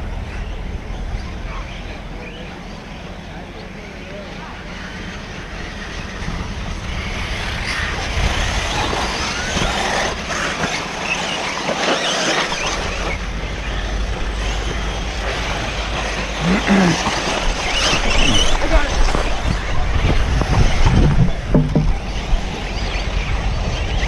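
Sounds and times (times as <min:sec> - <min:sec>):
rc cars racing: 0:00.0 - 0:24.0
wind rumbling on microphone: 0:04.7 - 0:11.2, 0:12.4 - 0:24.0
person speaking: 0:16.4 - 0:17.4.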